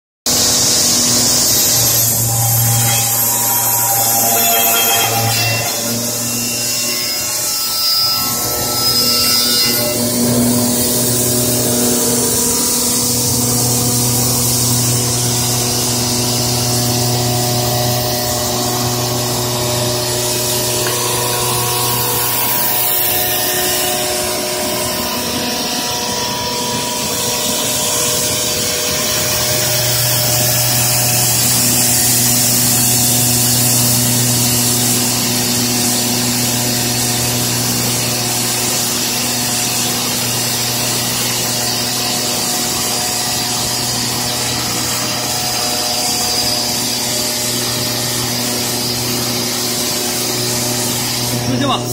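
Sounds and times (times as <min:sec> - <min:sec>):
paper tube machine running: 0:00.3 - 0:08.6
low machine hum: 0:00.3 - 0:51.9.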